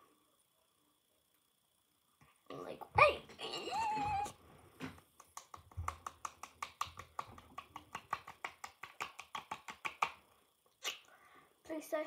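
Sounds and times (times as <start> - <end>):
fingertips patting face: 4.9 - 11.0.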